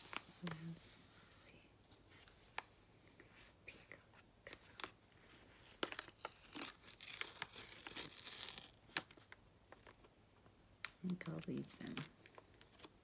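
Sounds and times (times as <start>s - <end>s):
paper envelope tearing: 5.8s - 8.8s.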